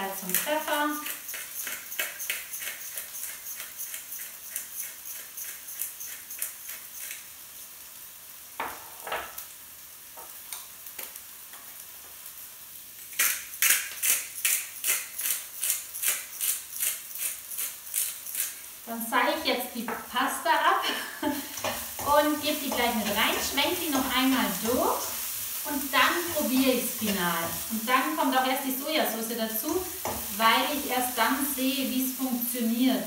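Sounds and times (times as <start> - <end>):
faint sizzle from a pan: 0.0 - 33.0
spice mill grinding: 0.3 - 7.4, 13.1 - 18.8.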